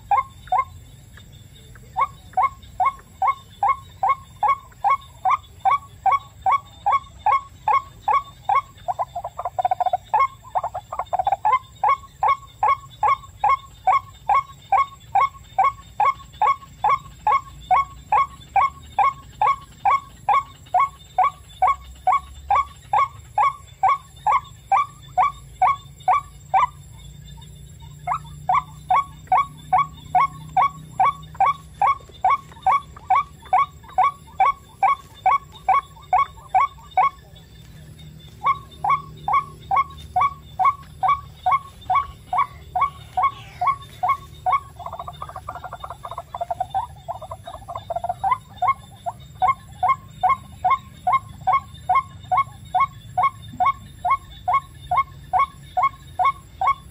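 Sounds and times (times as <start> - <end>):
waterhen calling: 0.0 - 0.7, 1.8 - 26.8, 27.8 - 37.6, 38.2 - 56.9.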